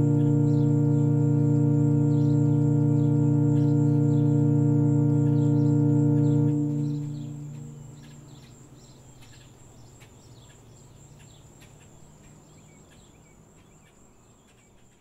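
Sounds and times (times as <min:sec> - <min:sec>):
low music note: 0:00.0 - 0:08.6
high insect drone: 0:00.0 - 0:14.9
birds chirping: 0:00.0 - 0:15.0.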